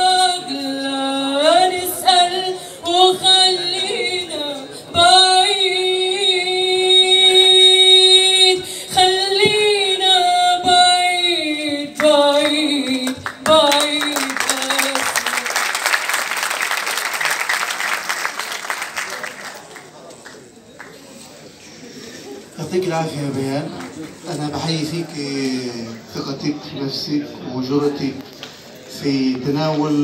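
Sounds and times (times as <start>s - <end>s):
woman singing: 0.0s - 15.6s
audience applause: 13.2s - 20.9s.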